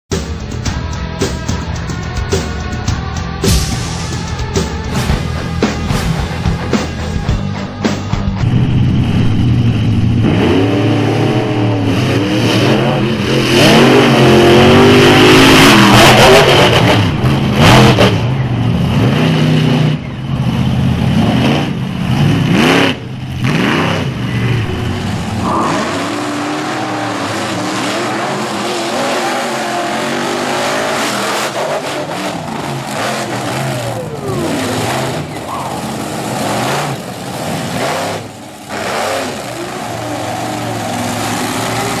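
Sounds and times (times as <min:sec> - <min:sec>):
monster truck engines revving: 0:00.1 - 0:42.0.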